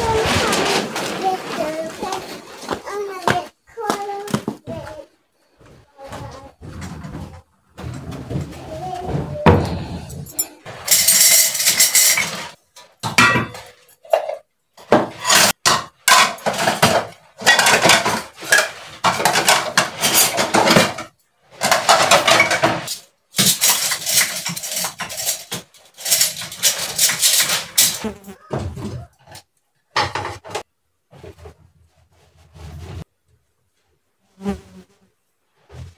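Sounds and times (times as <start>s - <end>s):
dishes clattering: 9.0s - 30.7s.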